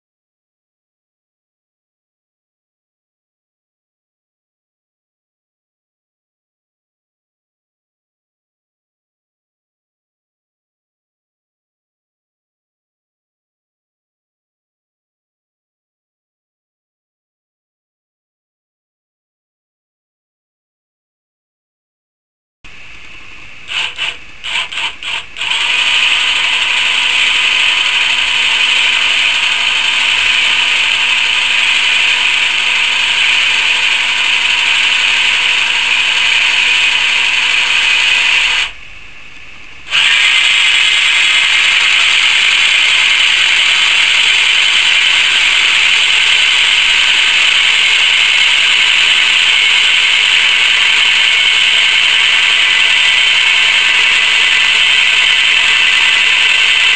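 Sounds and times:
electric jack motor whining: 23.7 - 38.8, 39.9 - 56.9.

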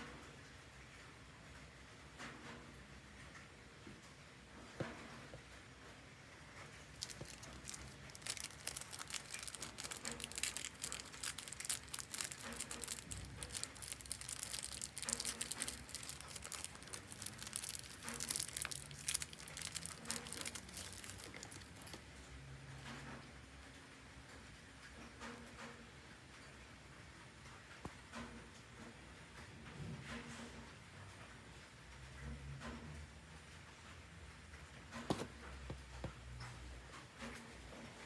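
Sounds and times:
plastic bag crinkling: 6.8 - 22.1.

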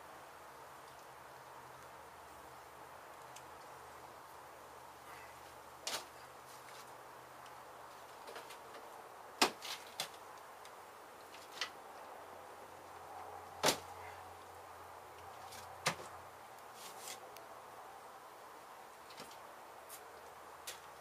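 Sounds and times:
faint steady hum: 0.0 - 21.0
wooden boards knocking and cracking: 9.4 - 10.2.

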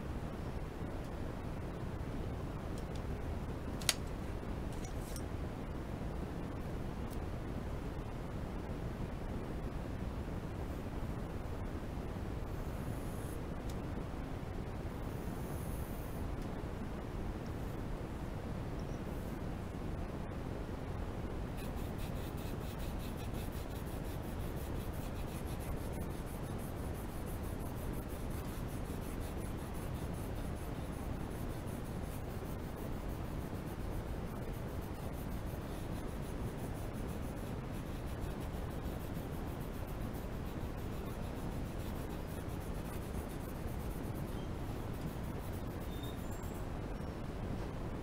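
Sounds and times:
pencil scratching on paper: 21.6 - 44.3.

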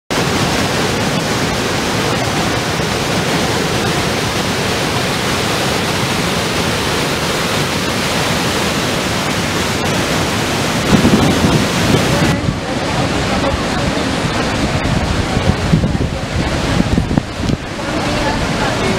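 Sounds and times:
waterfall rushing: 0.1 - 18.9.

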